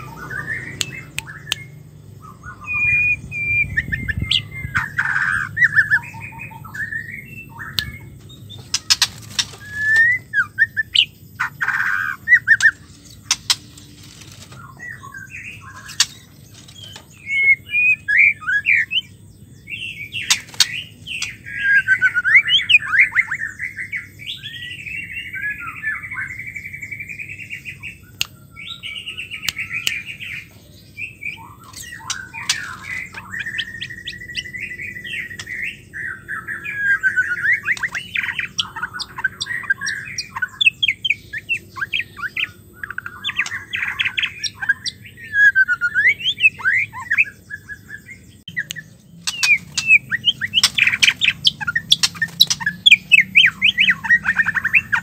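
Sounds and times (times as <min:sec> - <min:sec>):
songbird whistles and chirps: 0:00.0 - 0:55.0
sharp clicks: 0:08.6 - 0:10.1, 0:12.6 - 0:14.6, 0:15.8 - 0:17.2, 0:48.6 - 0:52.8.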